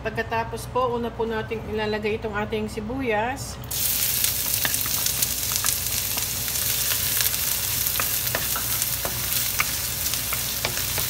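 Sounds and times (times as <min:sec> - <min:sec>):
crackles of frying: 0:03.7 - 0:11.0
onion sizzling in hot oil: 0:03.7 - 0:11.0.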